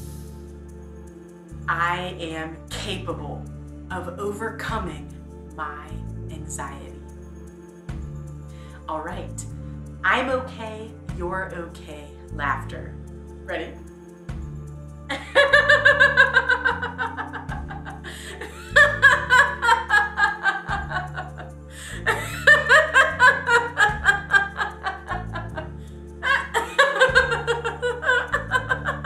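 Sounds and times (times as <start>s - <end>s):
soft background music: 0.0s - 29.0s
woman laughing: 15.1s - 29.0s.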